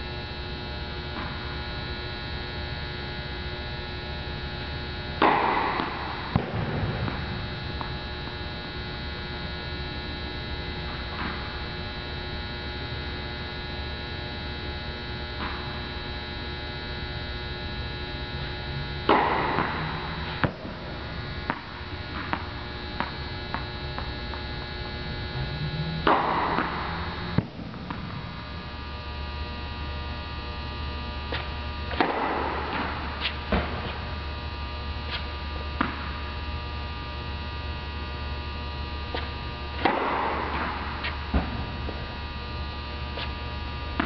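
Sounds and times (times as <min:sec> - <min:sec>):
electrical hum: 0:00.0 - 0:44.0
racquet hitting tennis ball: 0:05.2 - 0:08.0, 0:19.0 - 0:24.4, 0:25.0 - 0:28.4, 0:31.3 - 0:34.0, 0:35.8 - 0:36.2, 0:39.1 - 0:42.1.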